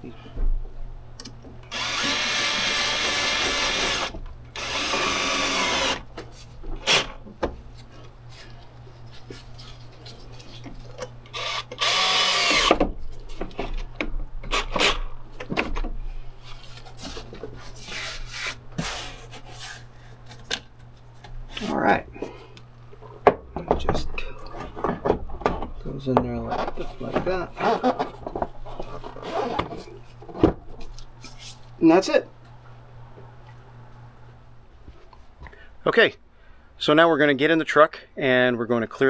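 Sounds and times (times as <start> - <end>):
cordless drill running: 1.7 - 6.1, 11.3 - 12.8.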